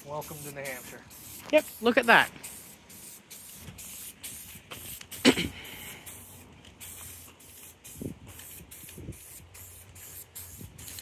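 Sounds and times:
spray paint can hissing: 0:00.0 - 0:11.0.

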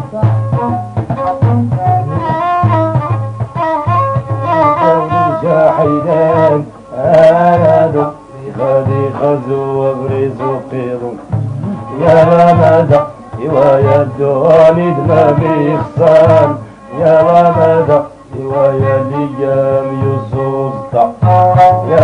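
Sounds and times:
bowed violin: 0:00.0 - 0:22.0
frame drums: 0:00.0 - 0:22.0
men singing: 0:04.6 - 0:22.0.

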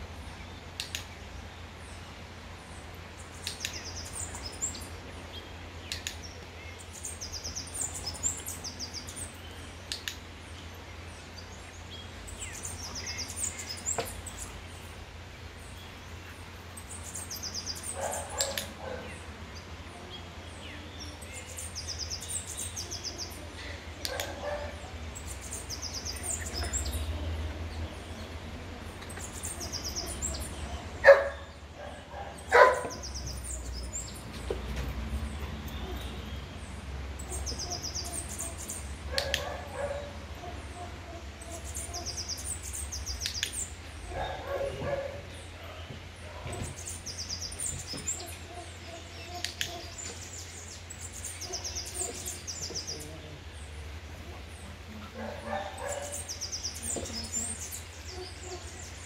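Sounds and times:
songbird chirping: 0:00.0 - 0:59.0
puppy barking: 0:18.0 - 0:19.2, 0:24.1 - 0:24.8, 0:31.0 - 0:33.0, 0:39.1 - 0:41.2, 0:44.1 - 0:45.3, 0:55.2 - 0:56.2.

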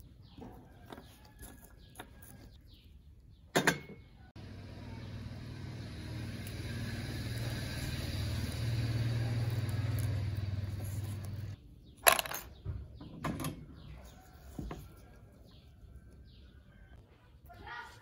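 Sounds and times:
low mechanical hum: 0:04.1 - 0:11.6
metal parts dropped into plastic tub: 0:12.0 - 0:12.6.

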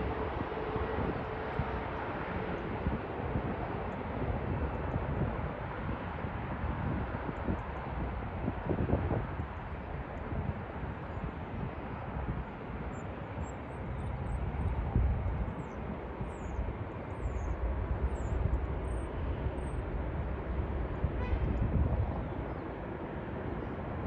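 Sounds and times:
distant jet engines rumbling: 0:09.3 - 0:24.0.

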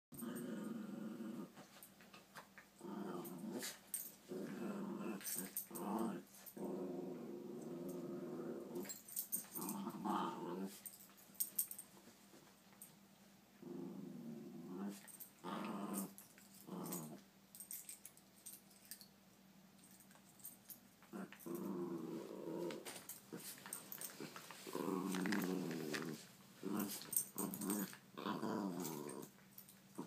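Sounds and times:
puppies play-growling: 0:00.2 - 0:01.9, 0:02.8 - 0:11.0, 0:13.6 - 0:18.6, 0:21.0 - 0:30.0
bedding rustling: 0:21.7 - 0:27.9.

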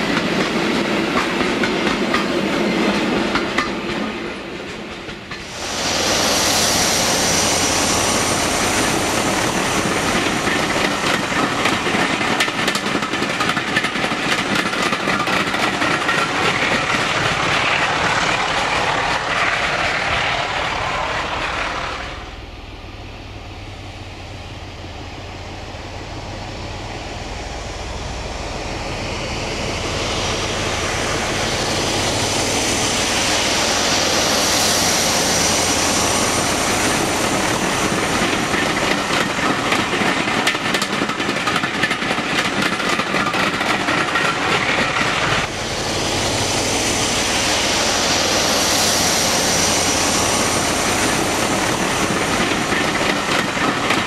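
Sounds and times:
diesel locomotive engine: 0:00.0 - 0:54.0.

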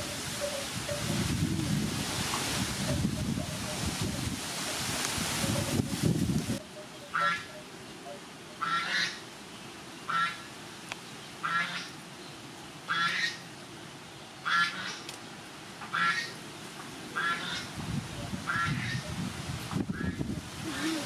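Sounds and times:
bird calling: 0:06.6 - 0:09.3.

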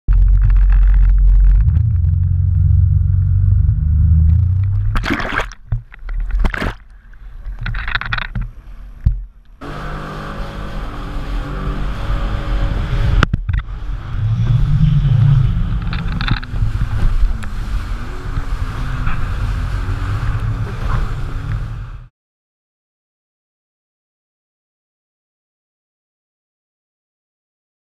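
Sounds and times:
heavy low rumble: 0:00.0 - 0:09.6, 0:11.4 - 0:22.1
jet ski engine drone: 0:01.4 - 0:04.9, 0:08.1 - 0:22.1
wind gusts on microphone: 0:11.6 - 0:22.0.

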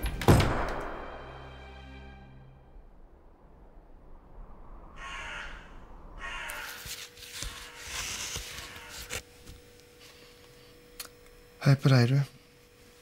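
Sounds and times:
plastic pages rustling: 0:06.6 - 0:09.6.

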